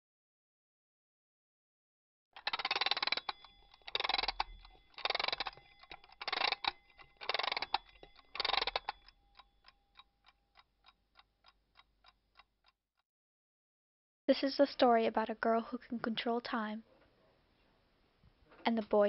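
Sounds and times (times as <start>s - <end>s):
clock ticking: 2.4s - 12.8s.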